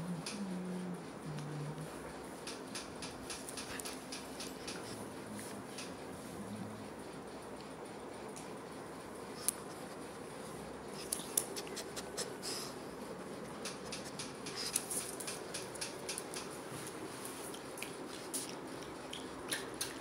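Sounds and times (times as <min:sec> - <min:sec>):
dog clicks and scuffs on tile: 0:02.5 - 0:05.0, 0:11.0 - 0:12.6, 0:13.6 - 0:20.0.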